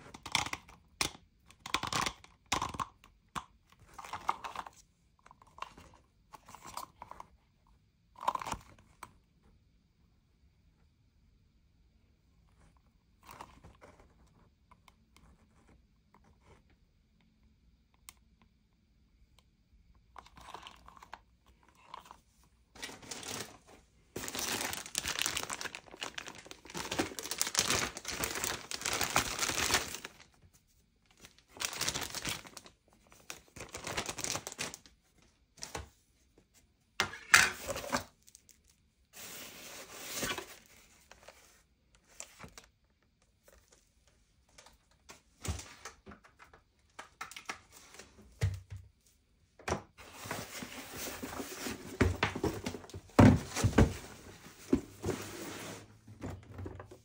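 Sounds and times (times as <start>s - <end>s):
crinkling and rustling: 12.3s - 16.8s, 20.0s - 57.0s.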